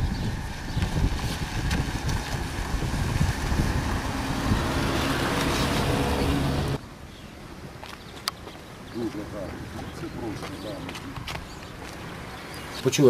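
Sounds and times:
wind buffeting microphone: 0:00.0 - 0:06.8, 0:09.2 - 0:12.7
vehicle engine rumbling: 0:00.0 - 0:07.0.

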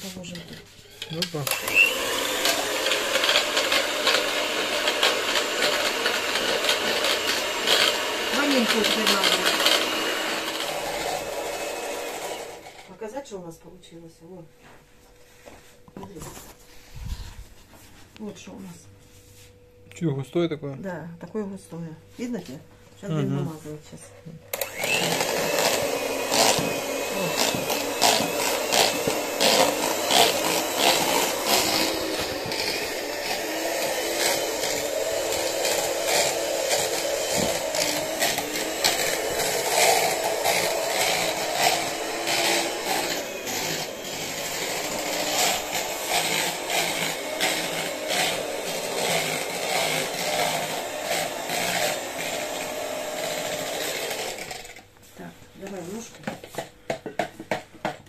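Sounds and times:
electric mixer motor running: 0:00.9 - 0:13.0, 0:24.5 - 0:54.9.

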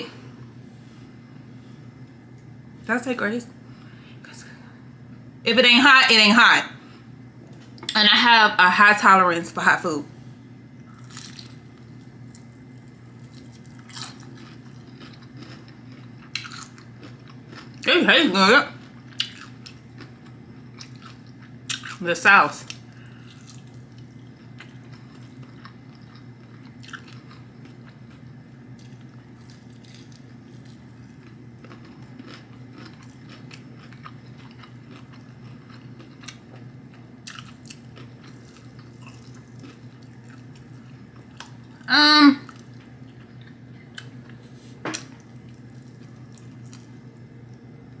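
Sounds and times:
low room hum: 0:00.0 - 0:48.0
chewing and biting: 0:10.9 - 0:11.6, 0:12.3 - 0:17.8, 0:18.9 - 0:22.0, 0:22.7 - 0:41.8.

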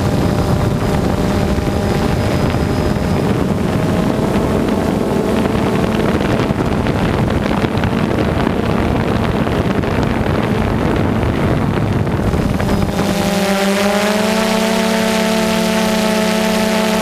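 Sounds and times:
drone propellers humming: 0:00.0 - 0:17.0
wind rushing over microphone: 0:00.0 - 0:17.0.

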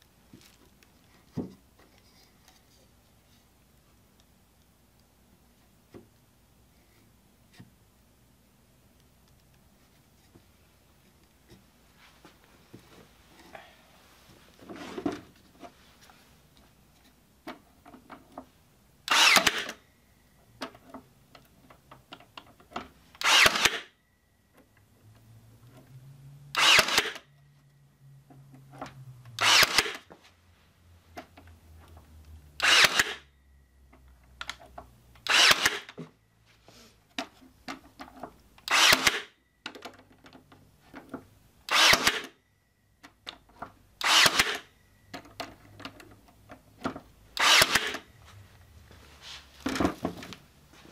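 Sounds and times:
nail gun shots: 0:19.1 - 0:19.8, 0:23.2 - 0:23.9, 0:26.6 - 0:27.2, 0:29.4 - 0:30.0, 0:32.6 - 0:33.2, 0:35.3 - 0:35.9, 0:38.7 - 0:39.4, 0:41.7 - 0:42.3, 0:44.0 - 0:44.6, 0:47.4 - 0:48.0.

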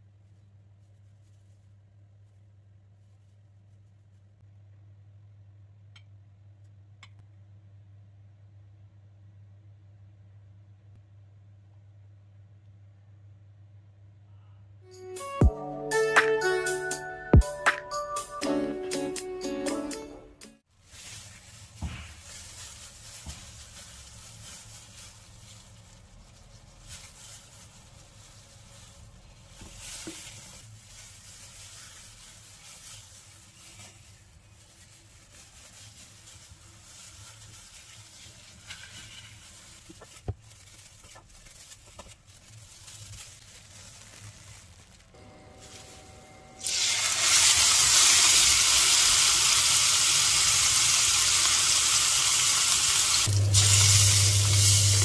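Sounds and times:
handling and rubbing sounds: 0:00.0 - 0:04.5, 0:20.7 - 0:46.1
chicken sizzling in hot oil: 0:45.6 - 0:55.0.

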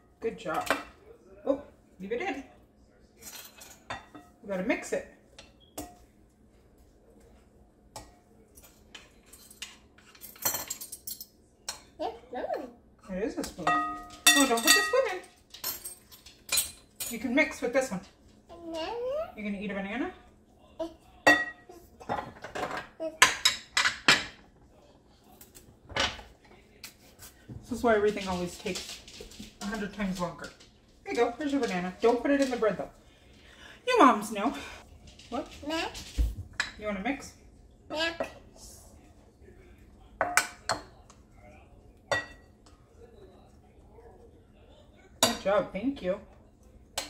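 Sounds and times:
spoons clinking against bowls: 0:05.3 - 0:06.2, 0:13.4 - 0:17.9, 0:21.2 - 0:22.3, 0:40.2 - 0:41.2, 0:42.0 - 0:42.8, 0:45.2 - 0:45.5.

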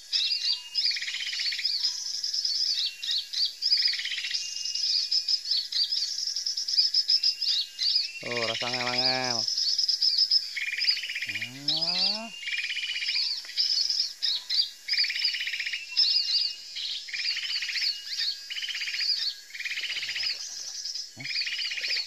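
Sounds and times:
songbirds chirping: 0:00.0 - 0:22.0
buzzy rattling bird trill: 0:08.2 - 0:09.6, 0:10.8 - 0:12.4.

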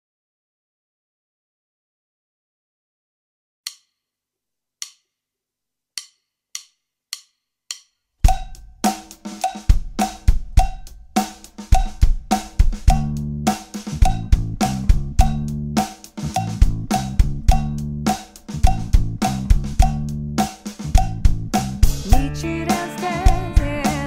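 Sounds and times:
drum kit groove: 0:06.0 - 0:24.0
backing track with bass line: 0:11.8 - 0:24.0.

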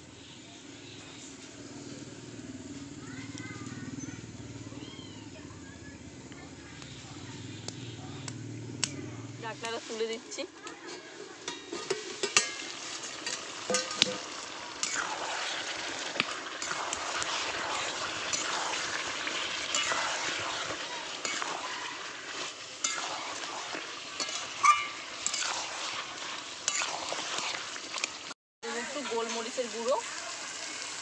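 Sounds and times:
meat sizzling in a pan: 0:00.1 - 0:31.0
spatula stirring and scraping: 0:09.5 - 0:30.2
spatula clinking on pan: 0:10.9 - 0:14.3, 0:24.2 - 0:25.6.

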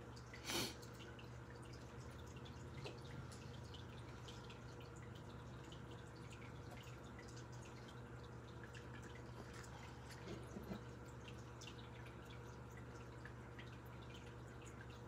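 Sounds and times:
low steady hum: 0:00.0 - 0:15.0.

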